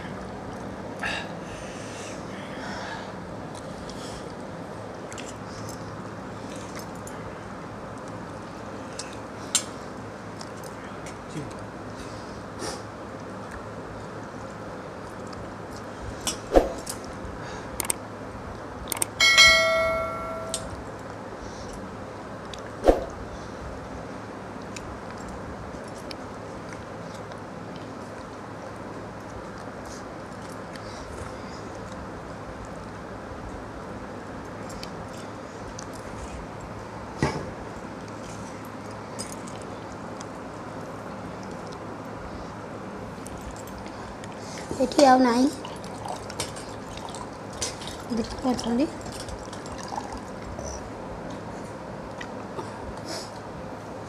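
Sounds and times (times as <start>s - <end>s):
low room hum and hiss: 0.0s - 54.0s
bell-like ding: 19.2s - 20.7s.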